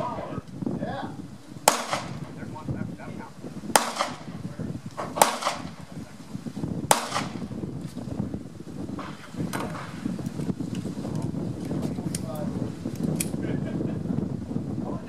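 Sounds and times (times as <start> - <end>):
pistol shots with echo: 1.6 - 2.4, 3.7 - 6.0, 6.9 - 7.6.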